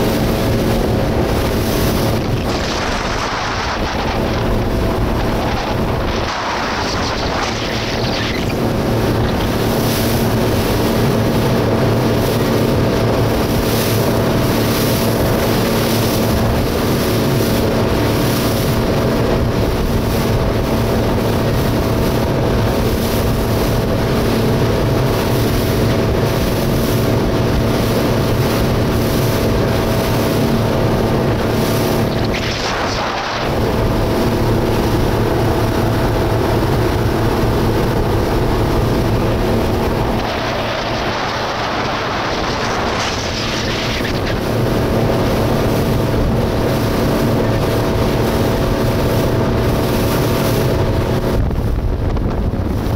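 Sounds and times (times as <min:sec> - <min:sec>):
motorboat engine running: 0:00.0 - 0:52.9
water rushing: 0:00.0 - 0:52.9
wind buffeting microphone: 0:00.0 - 0:52.9.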